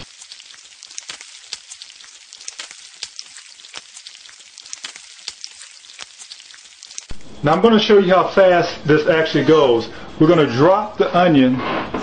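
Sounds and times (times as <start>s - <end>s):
crackling and sizzling: 0.0s - 7.4s.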